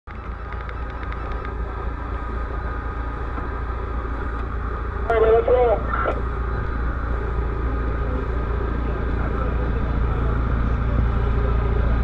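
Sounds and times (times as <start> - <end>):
small engines idling: 0.1 - 12.0
faint voices: 5.1 - 6.3, 7.5 - 12.0.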